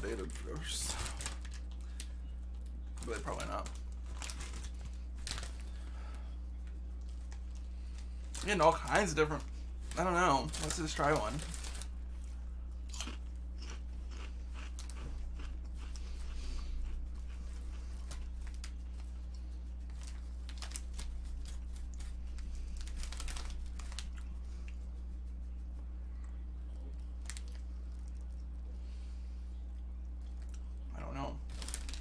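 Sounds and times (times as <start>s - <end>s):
low electrical hum: 0.0s - 32.0s
person crunching potato chip: 12.8s - 18.8s.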